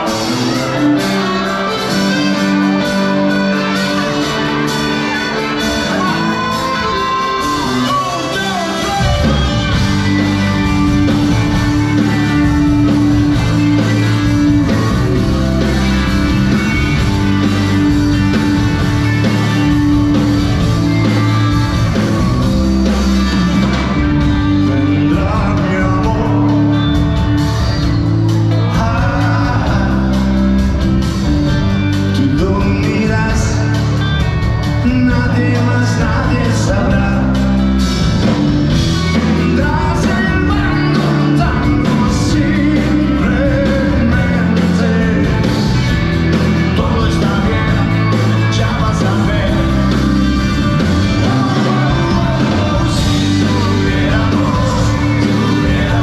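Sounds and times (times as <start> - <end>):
man singing: 0.0 - 13.2, 24.2 - 27.2, 28.5 - 30.6, 32.0 - 37.8, 39.0 - 56.0
live rock band playing: 0.0 - 56.0.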